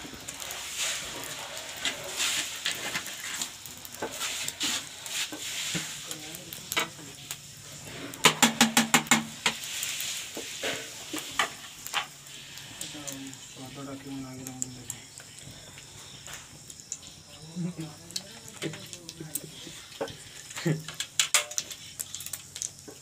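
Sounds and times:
crackling wood fire: 0.0s - 23.0s
oil sizzling in a wok: 0.0s - 23.0s
sharp pops: 8.2s - 12.2s.

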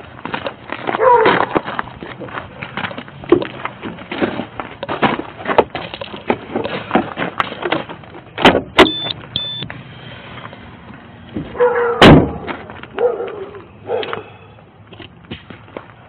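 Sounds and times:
short high electronic beeps: 8.8s - 9.7s.

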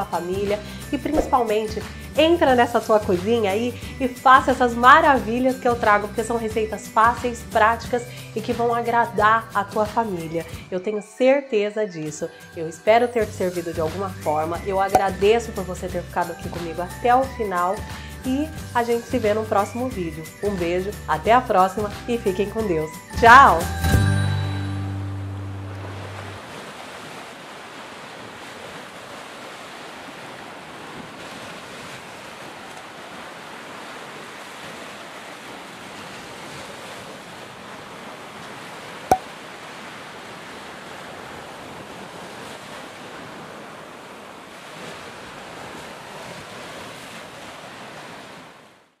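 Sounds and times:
surf washing onto beach: 25.8s - 48.6s.

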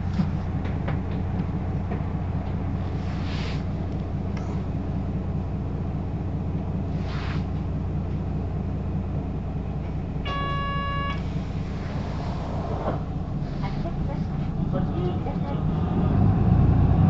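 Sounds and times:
bus engine drone: 0.0s - 17.0s
brief hiss: 7.0s - 7.5s
electronic tone: 10.3s - 11.2s.

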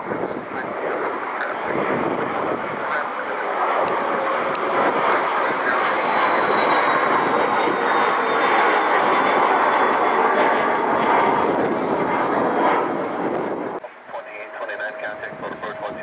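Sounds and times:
high engine whine: 0.0s - 16.0s
jet engines roaring: 0.0s - 16.0s.

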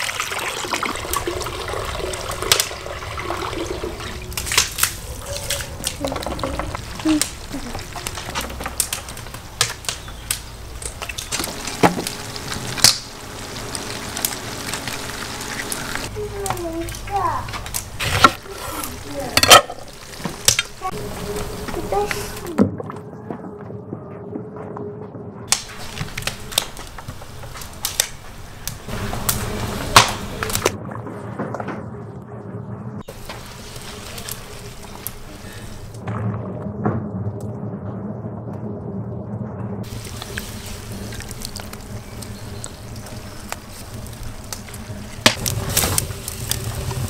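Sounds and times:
pan sizzling and crackling: 0.0s - 5.0s, 5.8s - 22.5s, 25.5s - 30.8s, 33.1s - 36.0s, 39.8s - 47.0s
sharp pops and clicks: 4.3s - 12.2s, 16.4s - 18.4s, 25.5s - 29.4s.

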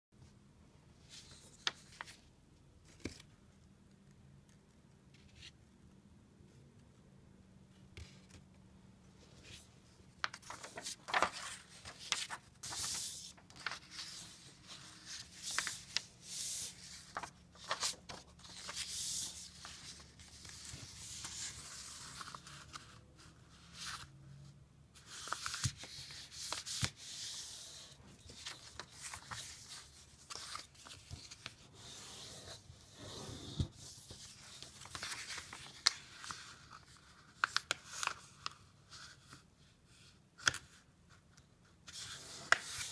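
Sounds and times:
paper rustling and scraping: 9.4s - 22.9s
paper crinkling when creased: 10.2s - 22.8s, 34.1s - 38.2s.

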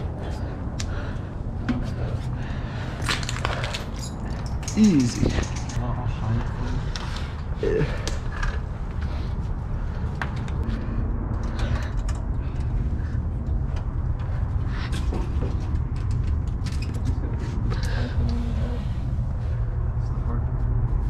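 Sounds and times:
low rumble: 0.0s - 21.0s
scrapes and knocks of climbing: 8.2s - 19.6s.

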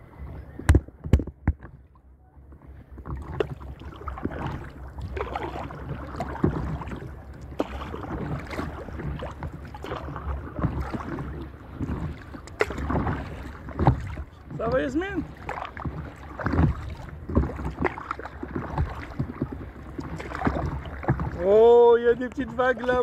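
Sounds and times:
water splashing from paddling: 0.0s - 23.0s
wind rumbling on microphone: 0.0s - 23.0s.

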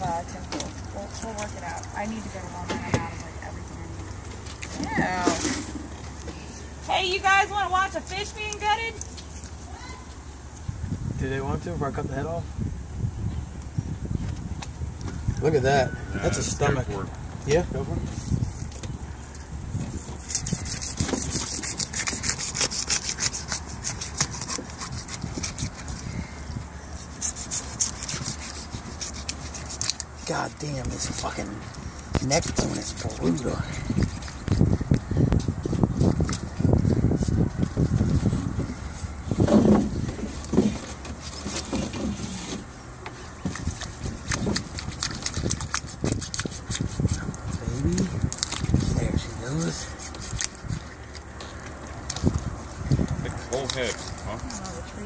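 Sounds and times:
knife sawing through bone: 20.0s - 26.4s, 27.0s - 31.5s, 32.2s - 34.8s, 43.4s - 47.4s, 49.5s - 50.9s.

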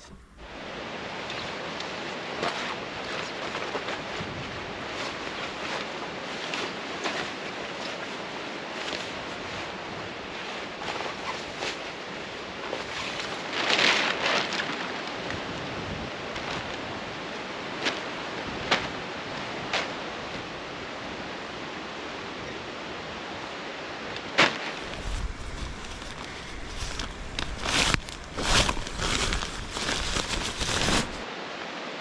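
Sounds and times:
steady rain: 0.0s - 32.0s
rustling: 24.2s - 31.3s.

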